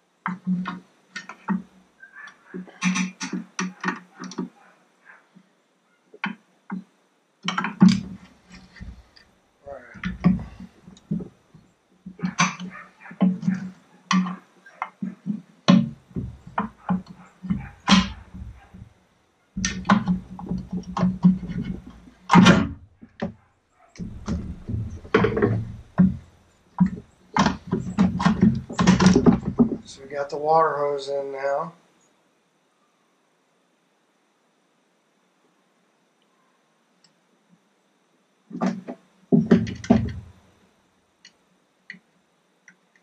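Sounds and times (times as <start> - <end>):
hands fitting rubber hose: 7.4 - 11.3, 24.0 - 26.2.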